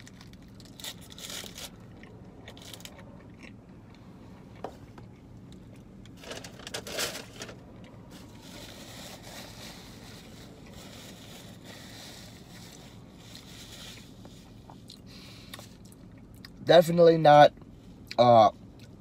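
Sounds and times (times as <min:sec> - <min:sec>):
quiet chewing: 0:01.7 - 0:06.1.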